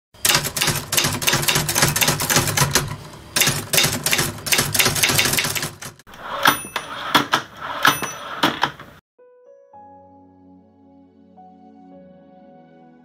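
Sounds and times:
typewriter keys clacking: 0:00.2 - 0:09.0.

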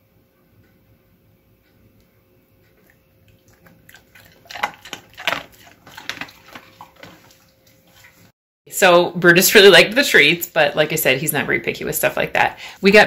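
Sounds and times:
dog crunching a hard treat: 0:03.3 - 0:07.5.

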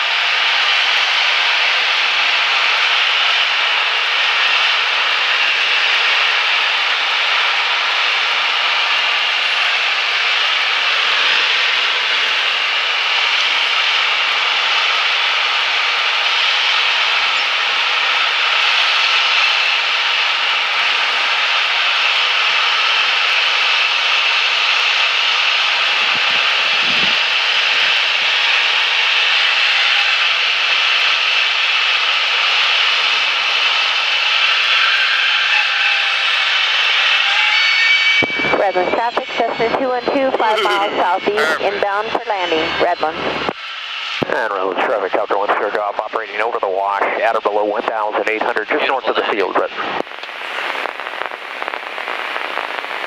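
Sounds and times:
propeller plane engine drone: 0:00.0 - 0:53.0
rushing air: 0:25.4 - 0:29.7, 0:37.9 - 0:40.4.

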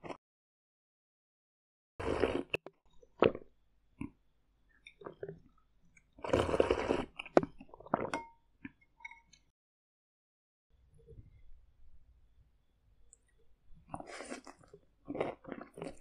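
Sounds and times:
slurping sips of soup: 0:02.0 - 0:02.6, 0:06.2 - 0:08.1, 0:13.9 - 0:16.0.

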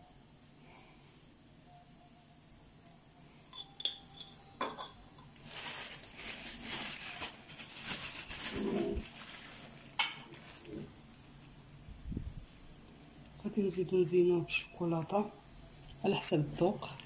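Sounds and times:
plastic packet crinkling: 0:05.4 - 0:10.9.

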